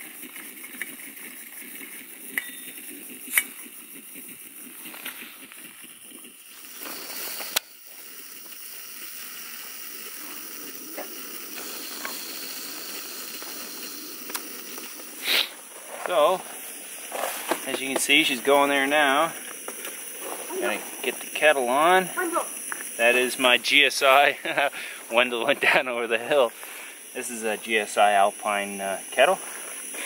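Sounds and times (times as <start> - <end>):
stove burner hissing: 0.0 - 30.0.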